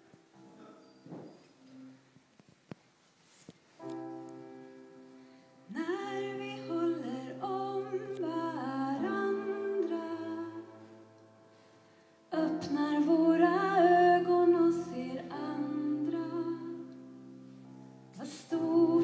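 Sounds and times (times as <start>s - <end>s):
accompanying chord: 3.8s - 19.0s.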